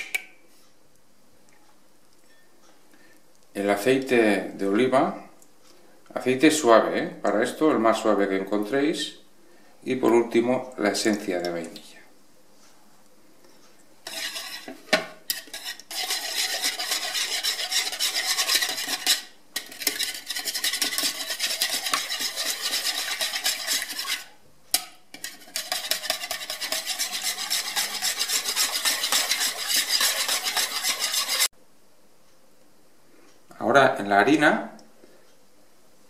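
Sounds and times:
whisk beating liquid in bowl: 14.1s - 24.4s, 25.2s - 31.5s.

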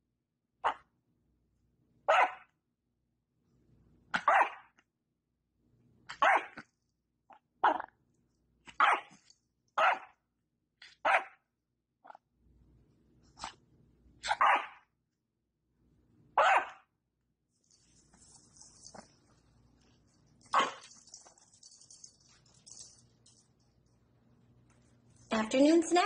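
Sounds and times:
small dog barking: 0.6s - 0.9s, 2.1s - 2.5s, 4.1s - 4.8s, 6.1s - 6.6s, 8.7s - 10.2s, 10.9s - 11.4s, 14.2s - 14.8s, 16.4s - 16.9s, 20.5s - 21.1s.

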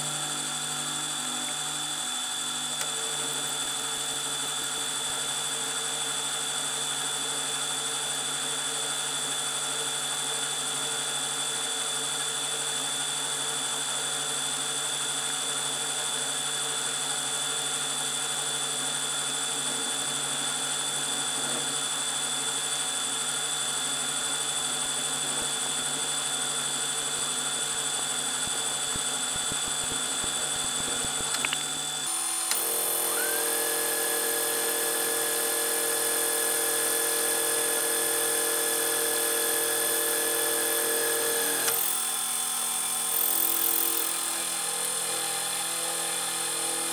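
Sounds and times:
milling machine whining: 24.5s - 46.9s.

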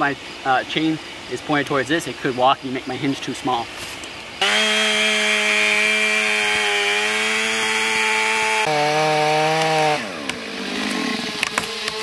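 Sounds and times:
chainsaw cutting tree trunk: 4.4s - 12.0s.

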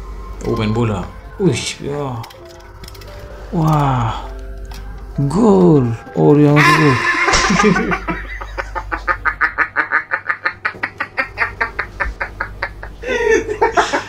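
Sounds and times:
man laughing hard: 6.6s - 14.0s.

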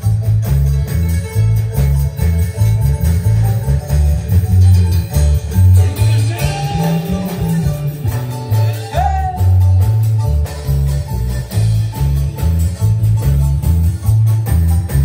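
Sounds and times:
live band playing latin dance music: 0.0s - 15.0s
pulsing bass line: 0.0s - 15.0s
person shouting: 8.6s - 9.8s.

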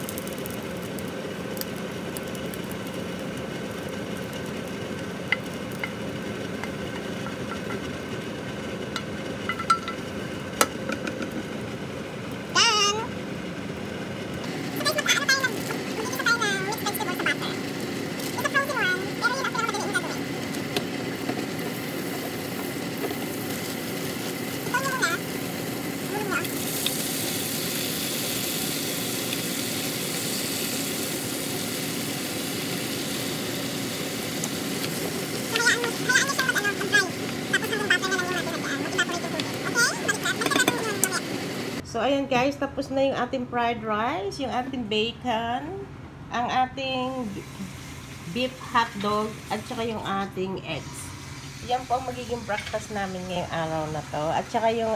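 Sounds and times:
butter sizzling in a frying pan: 0.0s - 41.8s, 47.2s - 54.9s
steady mechanical hum: 0.0s - 54.9s
taps against pan and bowl: 9.5s - 10.0s
person speaking loudly: 18.3s - 20.3s, 24.6s - 25.2s, 35.5s - 41.3s.

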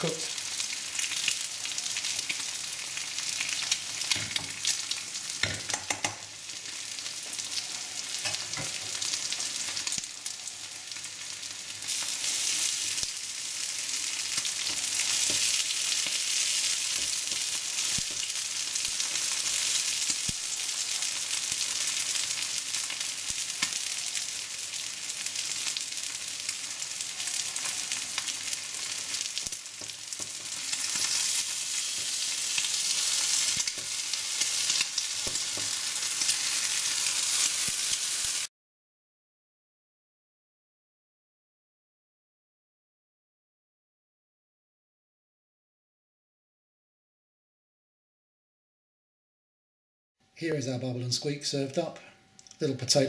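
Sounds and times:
food sizzling in a frying pan: 0.0s - 38.5s.

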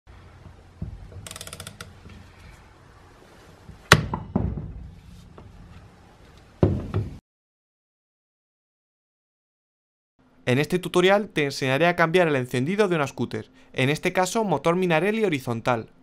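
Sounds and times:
ratchet wrench clicking: 1.2s - 1.9s
sharp metal knocks: 3.9s - 4.9s.

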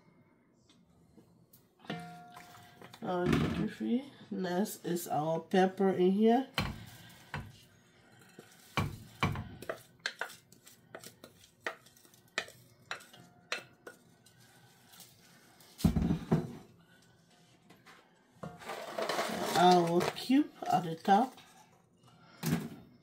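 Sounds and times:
wooden spatula scraping bowl: 6.7s - 15.4s, 18.5s - 21.8s.

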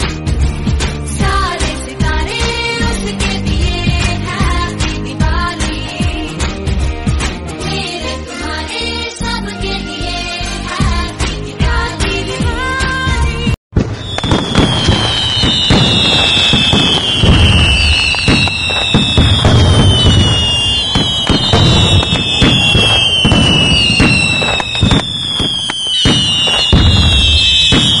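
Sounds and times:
fireworks crackling: 13.8s - 28.0s
low firework thumps: 13.8s - 28.0s
whistling firework shots: 13.8s - 28.0s.

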